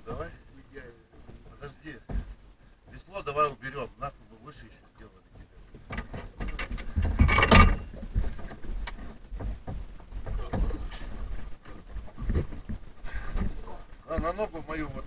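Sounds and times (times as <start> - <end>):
microphone handling noise: 5.3 - 15.0.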